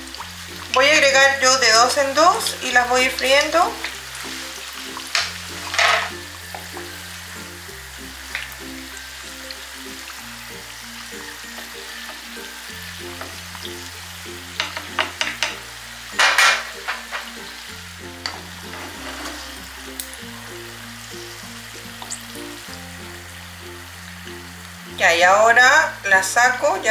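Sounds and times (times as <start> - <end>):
background music: 0.0 - 26.9
deep-frying sizzle: 0.0 - 26.9
utensils clicking and scraping in pan: 3.1 - 6.7, 14.5 - 17.6, 18.2 - 20.1.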